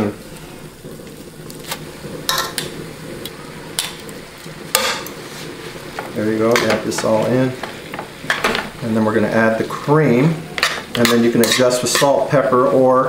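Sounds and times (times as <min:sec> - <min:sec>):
water flaring up hissing: 0:00.0 - 0:12.3
pasta sizzling in frying pan: 0:00.0 - 0:13.0.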